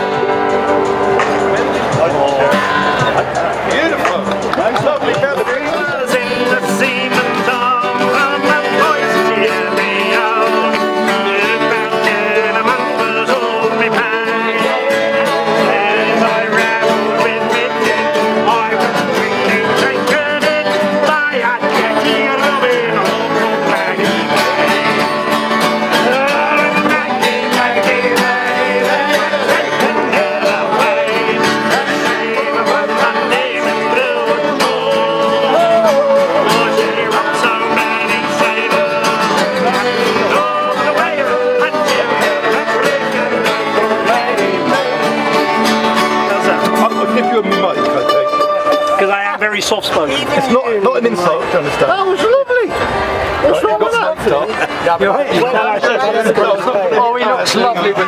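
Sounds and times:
band singing in chorus: 0.0s - 48.9s
accordions: 0.0s - 52.0s
mandolin: 0.0s - 58.0s
strummed acoustic guitars: 0.0s - 58.0s.

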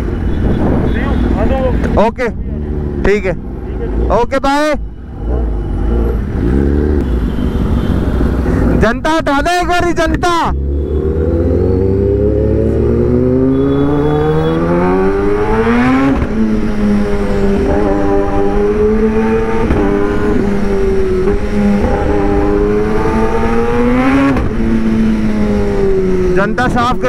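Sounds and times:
motorcycle engine accelerating: 5.1s - 7.1s, 10.5s - 26.5s.

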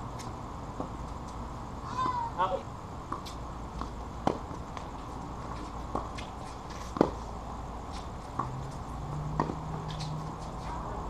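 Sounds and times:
ball bouncing on hard court: 3.1s - 4.9s, 8.3s - 10.2s
tennis ball struck by rackets: 3.1s - 4.9s, 5.6s - 7.2s, 7.9s - 10.2s.

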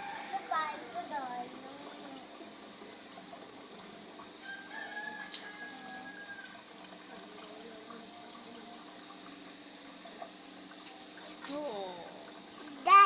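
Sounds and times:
rooster crowing: 0.0s - 0.5s, 4.4s - 6.6s.

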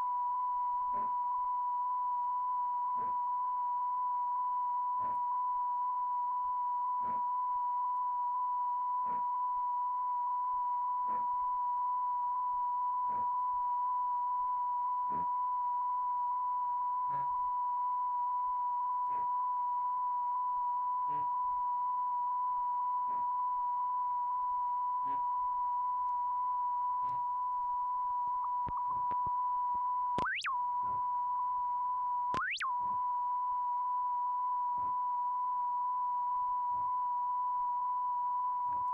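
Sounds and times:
sine test tone: 0.0s - 38.9s
tone chirping upward: 30.2s - 30.6s, 32.3s - 32.8s.

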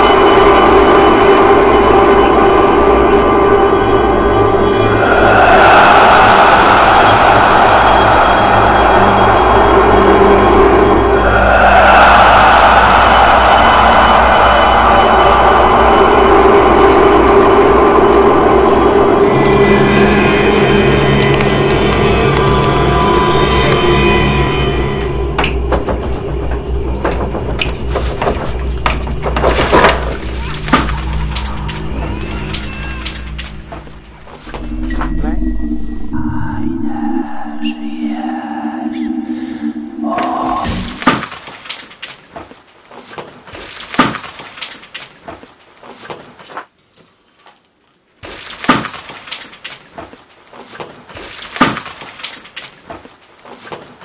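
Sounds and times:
steady low drone: 0.0s - 41.0s
wooden knocks and cracks: 25.4s - 31.8s, 40.7s - 47.6s, 48.2s - 54.0s.

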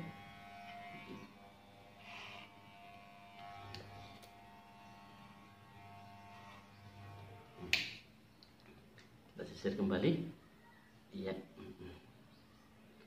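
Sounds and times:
electric hair clipper buzzing: 0.0s - 8.0s.

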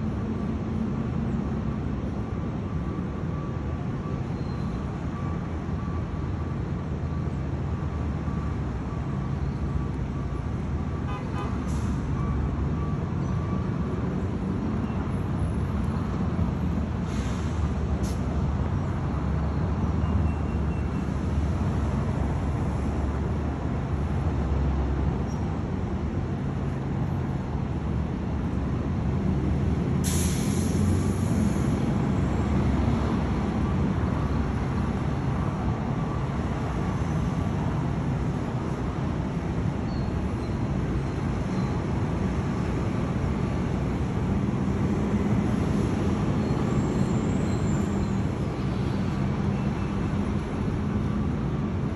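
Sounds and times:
short hiss: 17.0s - 18.2s, 30.0s - 31.3s.

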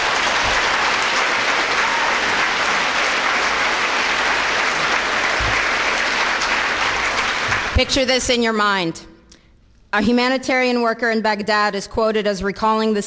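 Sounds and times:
audience applauding: 0.0s - 8.0s.

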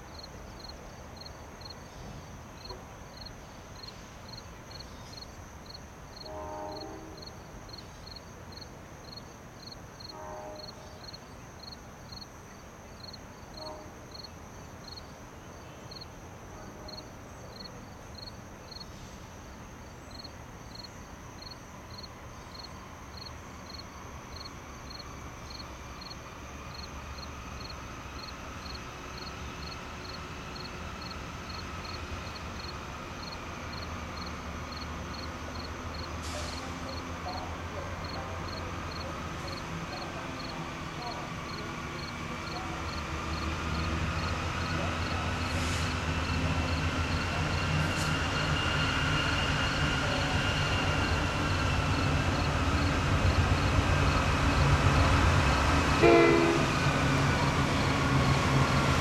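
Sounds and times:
freight train rumbling: 0.0s - 59.0s
insects chirping: 0.0s - 59.0s.

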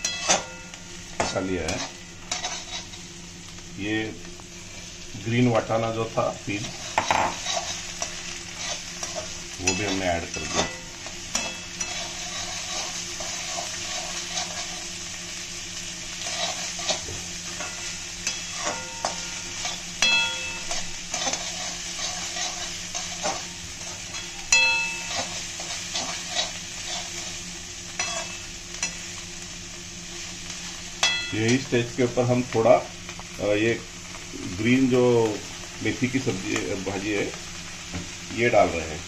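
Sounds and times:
pan ringing: 0.0s - 3.1s, 9.0s - 14.2s, 16.4s - 29.2s, 30.9s - 31.9s
spatula scraping and clanking on pan: 0.0s - 3.1s, 6.5s - 15.2s, 15.8s - 29.3s
vegetables sizzling in a pan: 0.0s - 39.0s.

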